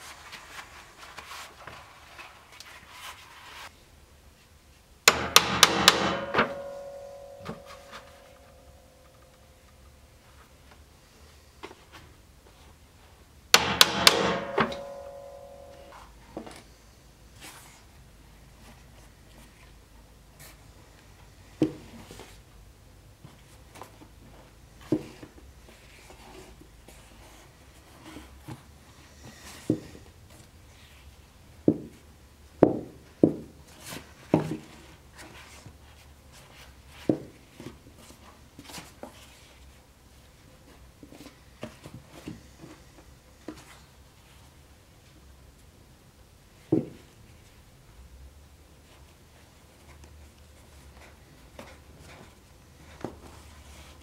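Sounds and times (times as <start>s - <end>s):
sharp ringing knocks: 5.1s - 8.4s, 13.6s - 15.9s.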